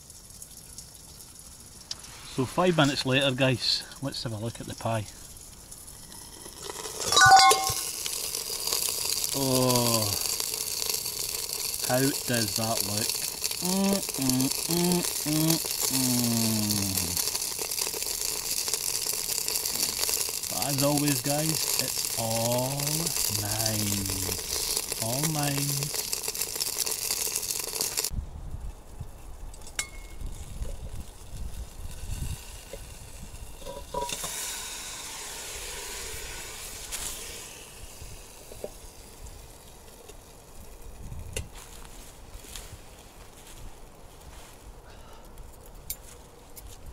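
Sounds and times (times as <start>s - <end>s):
campfire crackling: 0.0s - 46.9s
pie sizzling in a tin: 0.0s - 46.9s
metal can clink: 6.9s - 8.0s.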